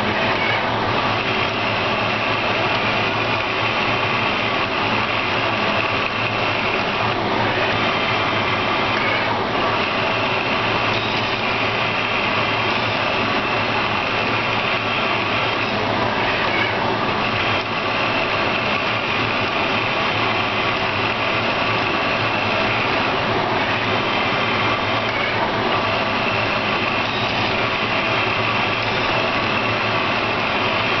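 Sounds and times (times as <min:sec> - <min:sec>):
stepper motors whirring: 0:00.0 - 0:31.0
whining tones: 0:00.0 - 0:31.0.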